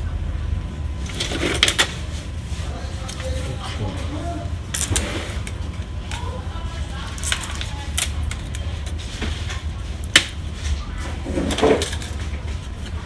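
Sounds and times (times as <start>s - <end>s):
steady low hum: 0.0s - 13.0s
rustling scrape: 10.5s - 13.0s.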